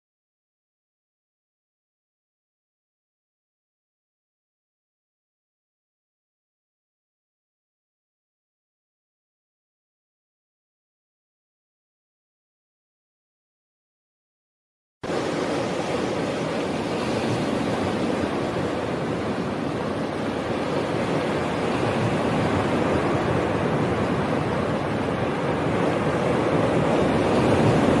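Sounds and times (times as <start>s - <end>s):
ocean surf roar: 15.0s - 28.0s.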